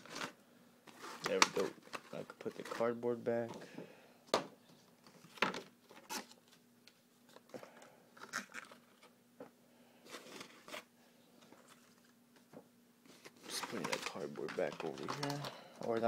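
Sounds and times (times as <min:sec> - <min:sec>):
plastic packaging crinkling: 0:13.1 - 0:16.0.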